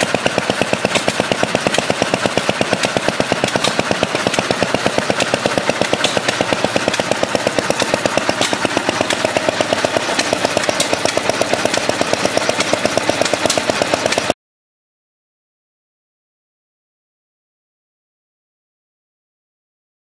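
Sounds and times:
pumping engine clattering: 0:00.0 - 0:14.4.

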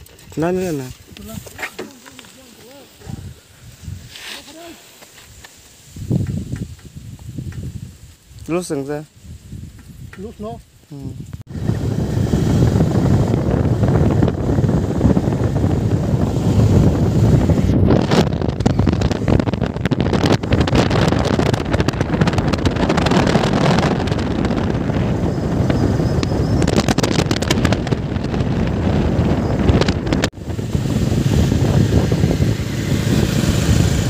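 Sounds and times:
wind buffeting microphone: 0:00.0 - 0:04.7, 0:05.3 - 0:34.0
road and engine noise: 0:11.0 - 0:34.0.

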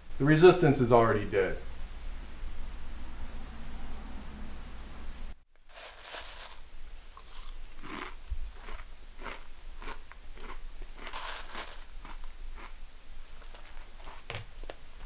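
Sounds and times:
cornflakes being chewed: 0:05.7 - 0:14.3.

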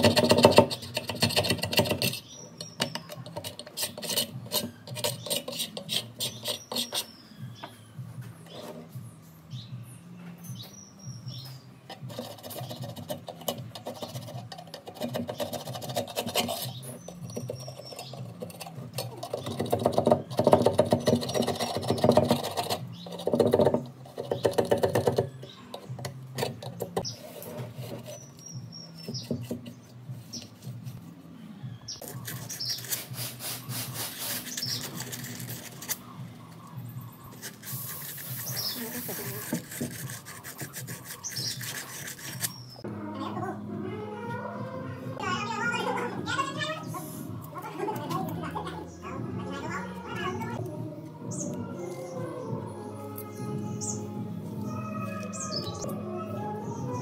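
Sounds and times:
hand tool scraping metal frame: 0:00.0 - 0:07.2, 0:11.9 - 0:30.6, 0:32.0 - 0:36.1, 0:37.2 - 0:42.8.

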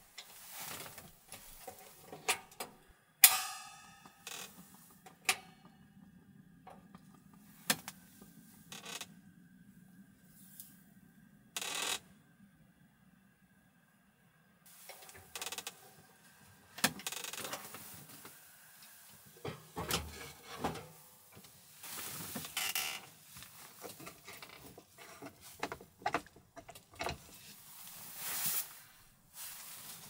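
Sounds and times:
rustling: 0:00.0 - 0:02.3, 0:17.0 - 0:26.4, 0:27.1 - 0:30.0
handling clicks and knocks: 0:23.8 - 0:27.4.

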